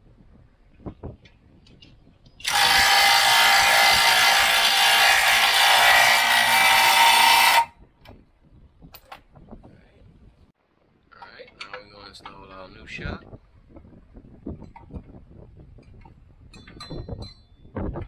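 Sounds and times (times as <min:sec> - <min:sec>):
cordless impact wrench running: 0:02.4 - 0:07.7.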